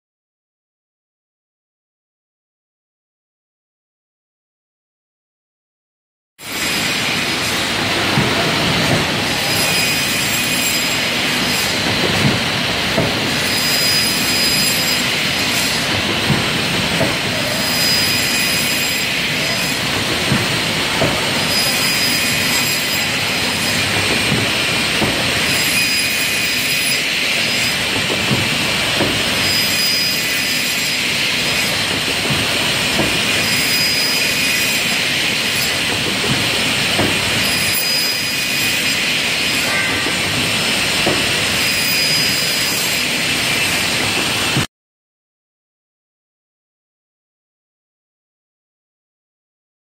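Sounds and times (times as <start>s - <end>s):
short high machine tones: 9.3s - 11.8s, 13.4s - 15.8s, 17.5s - 19.8s, 21.3s - 24.0s, 25.4s - 27.9s, 29.3s - 31.8s, 33.4s - 35.8s, 37.4s - 40.1s, 41.6s - 43.8s.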